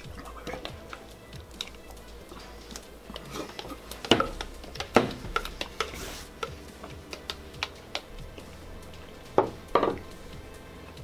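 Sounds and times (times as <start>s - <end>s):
spoon tapping in plastic cup: 3.1s - 8.1s
cups set down on table: 9.4s - 10.0s.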